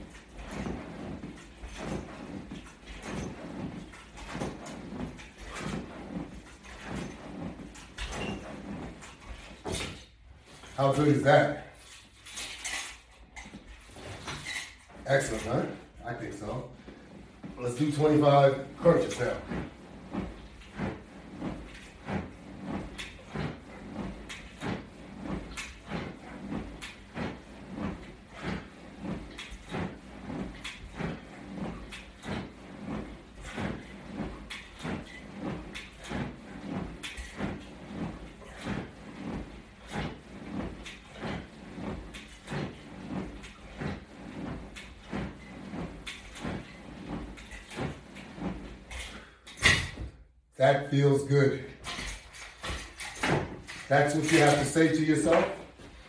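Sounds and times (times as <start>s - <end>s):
clothing rustle: 0.0s - 56.0s.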